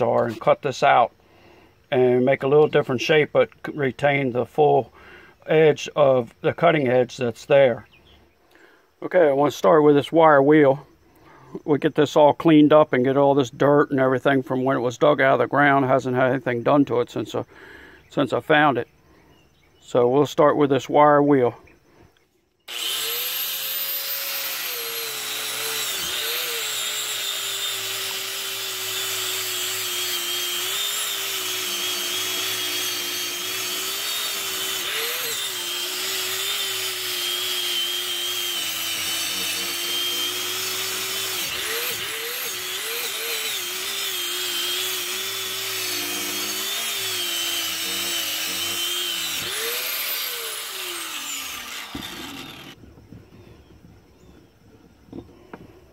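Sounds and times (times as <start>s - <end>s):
angle grinder with wire brush: 22.7s - 52.8s.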